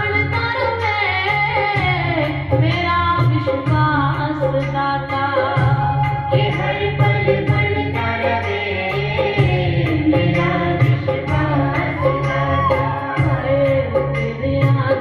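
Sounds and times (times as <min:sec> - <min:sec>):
light percussion: 0:00.0 - 0:15.0
low instrumental accompaniment: 0:00.0 - 0:15.0
devotional singing: 0:04.2 - 0:15.0.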